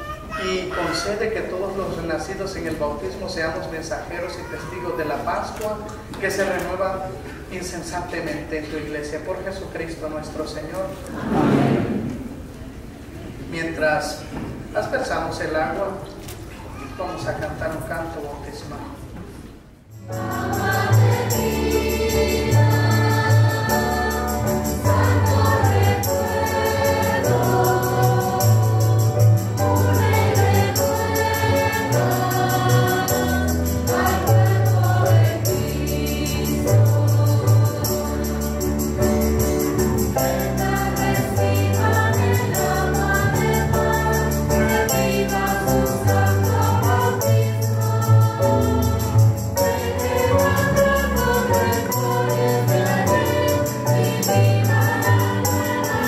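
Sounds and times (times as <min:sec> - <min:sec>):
choir singing a hymn: 0:11.1 - 0:12.5, 0:19.9 - 0:56.0
instrumental accompaniment: 0:19.9 - 0:56.0.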